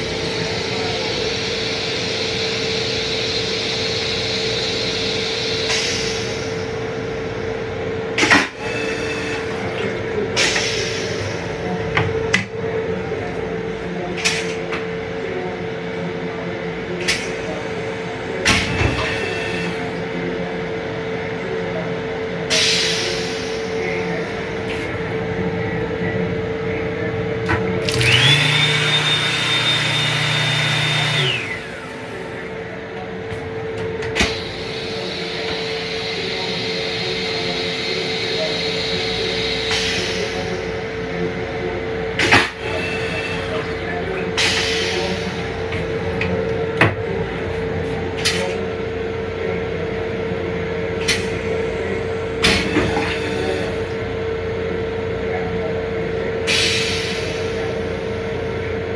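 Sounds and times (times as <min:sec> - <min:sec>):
hand dryer blowing with motor whine: 0:27.5 - 0:40.5.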